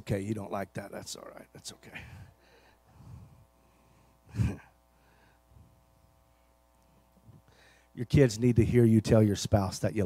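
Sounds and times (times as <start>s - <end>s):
faint steady hum: 0.0s - 10.0s
man exhaling into microphone: 4.3s - 5.4s.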